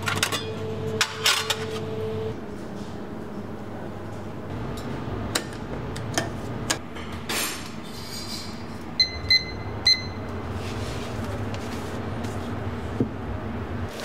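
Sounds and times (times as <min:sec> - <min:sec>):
kitchen timer beeps: 0:09.0 - 0:10.2.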